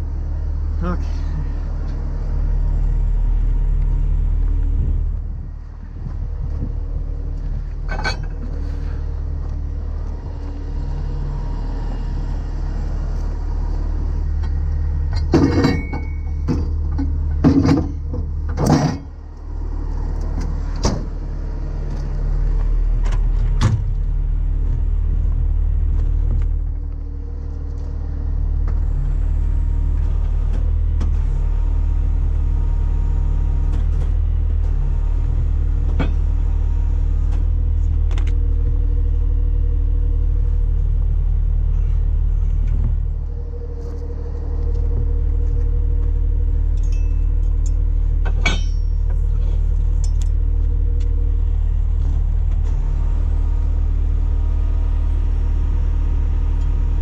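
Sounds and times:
diesel engine idling: 0:00.0 - 0:57.0
metal clanks and knocks: 0:07.4 - 0:09.6, 0:15.0 - 0:19.2, 0:46.8 - 0:50.4.

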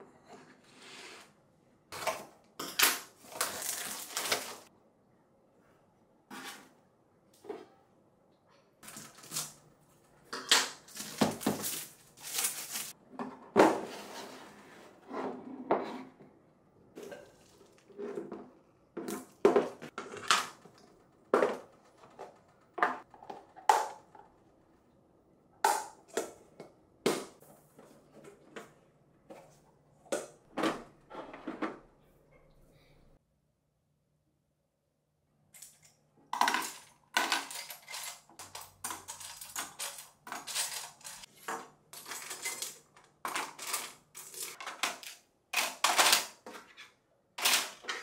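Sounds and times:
plastic boxes clicking and knocking: 0:36.3 - 0:46.8.

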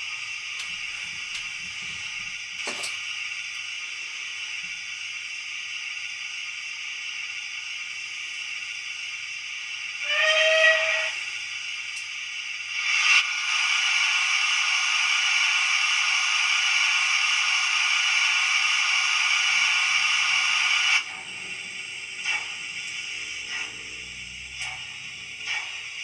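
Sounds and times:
steam engine hissing: 0:00.0 - 0:26.0
steam whistle blast: 0:10.0 - 0:11.3
click: 0:11.9 - 0:12.1.

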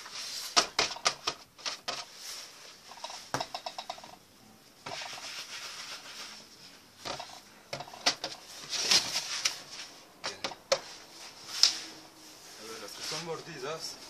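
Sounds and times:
soft rubbing: 0:04.8 - 0:07.5, 0:10.8 - 0:14.0.

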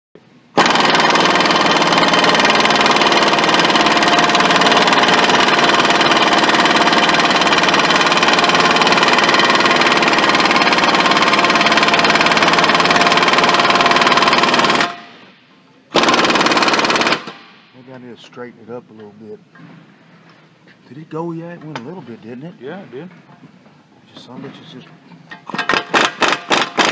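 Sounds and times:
impact wrench hammering: 0:00.6 - 0:15.2, 0:25.3 - 0:26.9.

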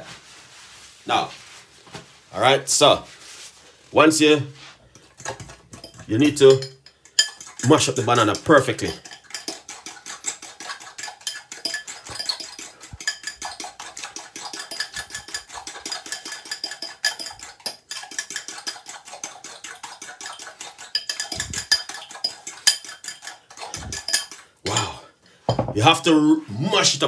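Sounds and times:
fork clinking against glass bowl: 0:05.0 - 0:25.6.

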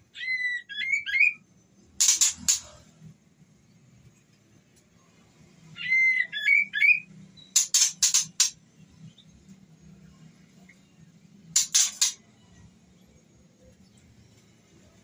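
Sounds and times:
bird harsh rasping notes: 0:02.0 - 0:02.8, 0:05.8 - 0:08.6, 0:11.6 - 0:12.2.

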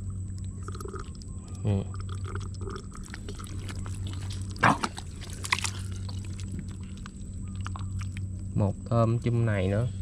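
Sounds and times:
steady low hum: 0:00.0 - 0:10.0
hand squelching in mud: 0:03.3 - 0:07.2.

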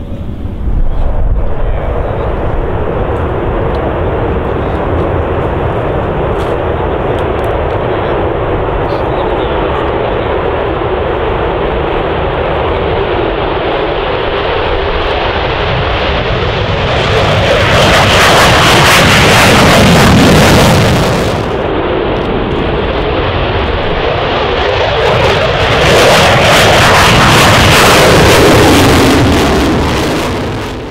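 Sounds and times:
jet engines roaring: 0:00.0 - 0:30.9.

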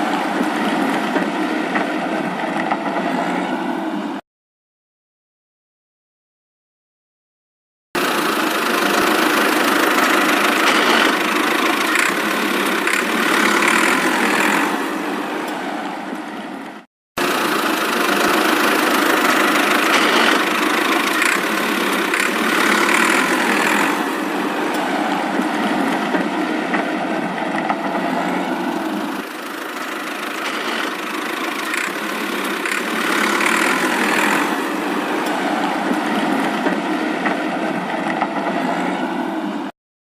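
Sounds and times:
toy truck rattling across tiled floor: 0:28.9 - 0:34.6.

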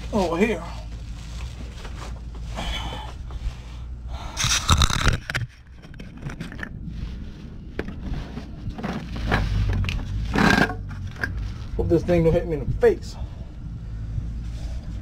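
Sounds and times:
metal scraping and rattling: 0:07.8 - 0:12.1.

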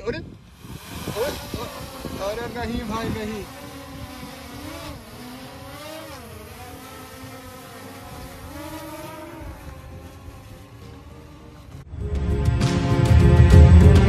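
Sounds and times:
wind rumble on microphone: 0:00.0 - 0:06.4, 0:09.3 - 0:10.6
drone propellers whining: 0:00.0 - 0:14.0.

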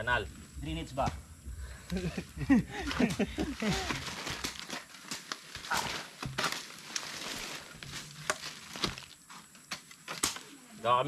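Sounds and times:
gritty scraping of soil: 0:00.6 - 0:11.0
shovels chopping into soil: 0:02.9 - 0:10.4.

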